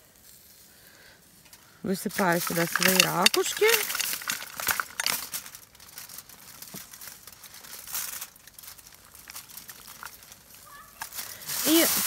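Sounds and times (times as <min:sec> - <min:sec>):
aluminium foil crinkling: 0:01.9 - 0:12.0
shells knocking together: 0:02.2 - 0:05.2.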